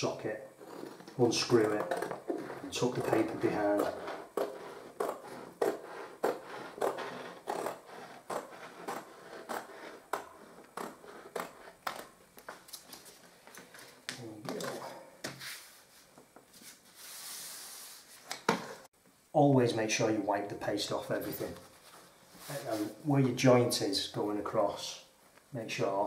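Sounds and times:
hand brushing paper on wall: 0:15.3 - 0:18.2.

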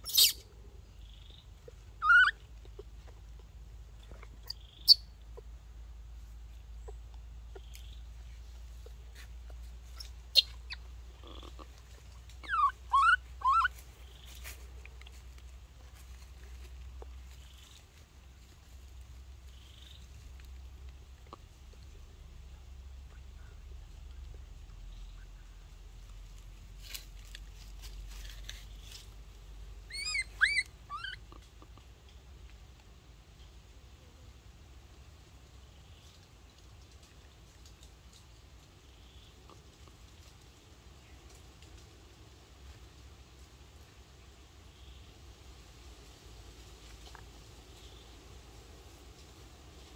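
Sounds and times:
baby monkey calling: 0:00.0 - 0:00.4, 0:01.0 - 0:02.4, 0:09.9 - 0:11.7, 0:12.4 - 0:13.8, 0:29.9 - 0:31.3
rustling in dry leaves: 0:00.0 - 0:49.9.

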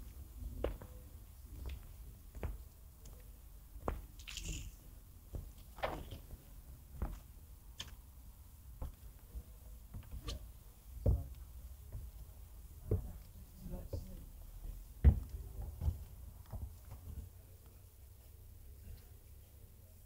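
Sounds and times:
footsteps dull knocks: 0:00.0 - 0:04.2, 0:05.1 - 0:17.8.

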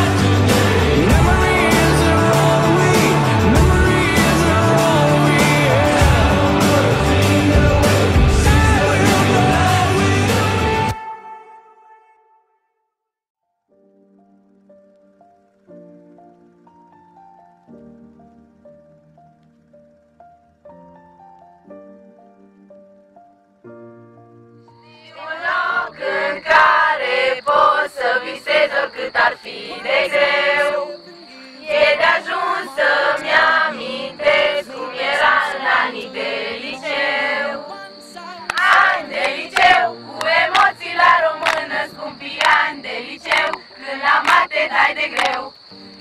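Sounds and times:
group singing together: 0:00.0 - 0:11.0, 0:24.9 - 0:45.6
sharp clicks: 0:43.3 - 0:43.6.

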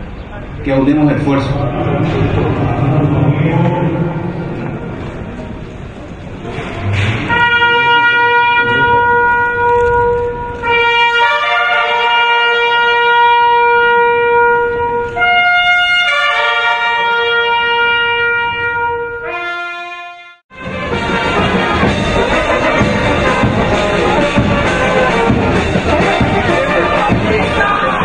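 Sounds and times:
bugle playing long notes: 0:07.2 - 0:28.0.

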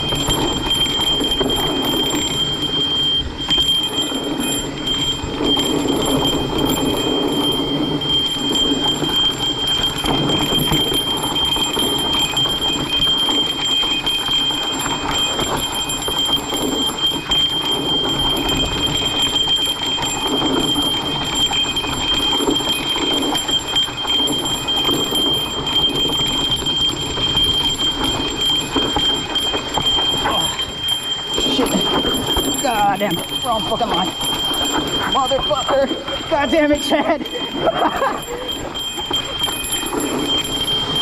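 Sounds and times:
bike frame and chain rattling: 0:00.0 - 0:41.0
thin high whine: 0:24.6 - 0:41.0.

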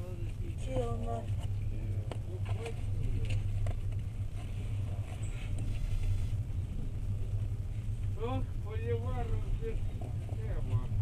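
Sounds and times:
train rumble inside carriage: 0:05.7 - 0:11.0.

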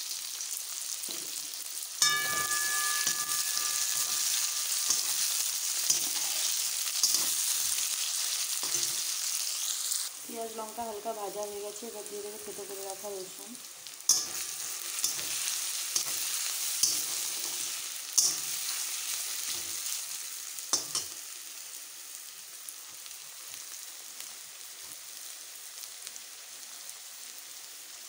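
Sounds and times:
food sizzling in hot oil: 0:00.0 - 0:28.0
metal spatula scraping pan: 0:02.0 - 0:09.2, 0:14.1 - 0:19.8.

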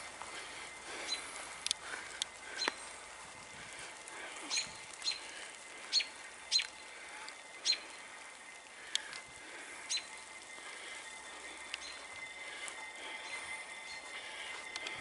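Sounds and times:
small bird chirping: 0:01.0 - 0:01.3, 0:04.4 - 0:05.3, 0:05.9 - 0:06.9, 0:07.5 - 0:08.2, 0:09.8 - 0:12.5.

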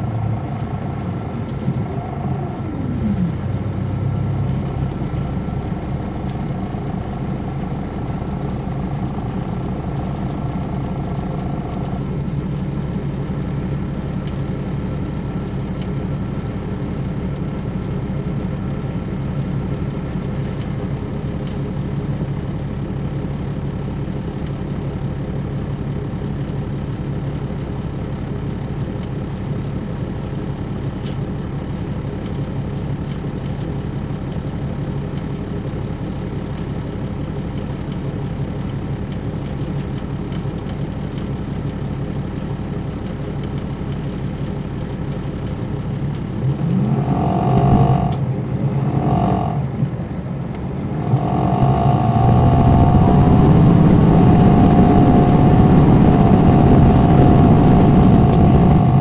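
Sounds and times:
bus diesel engine humming: 0:00.0 - 0:59.0.

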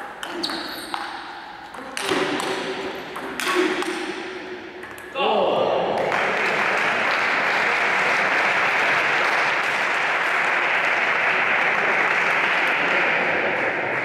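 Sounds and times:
spectators applauding: 0:06.0 - 0:14.0.

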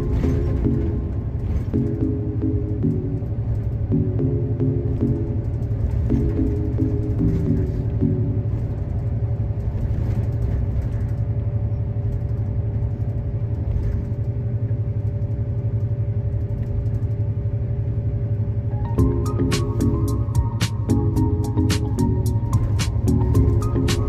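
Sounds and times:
background music with plucked notes: 0:00.0 - 0:08.9, 0:18.7 - 0:24.0
vehicle rumble: 0:00.0 - 0:24.0.

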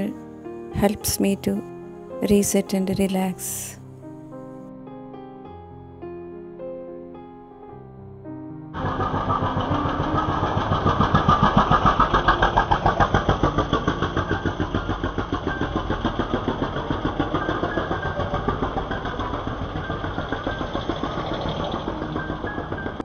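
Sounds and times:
small engine chugging: 0:08.7 - 0:23.0.

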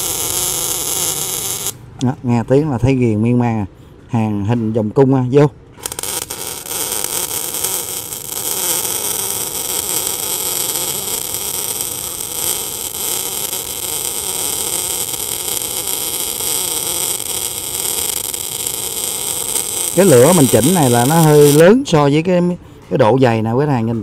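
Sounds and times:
welding arc crackling: 0:00.0 - 0:01.8, 0:05.8 - 0:21.7.

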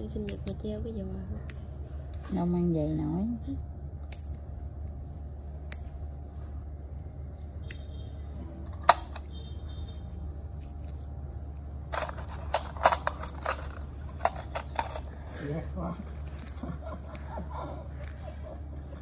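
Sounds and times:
steady low hum: 0:00.0 - 0:19.0
nail nipper clicking: 0:04.0 - 0:04.5.

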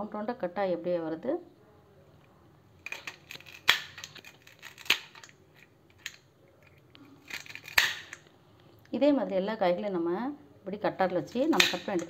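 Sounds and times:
vegetable cutter slicing gourds: 0:11.4 - 0:12.0.

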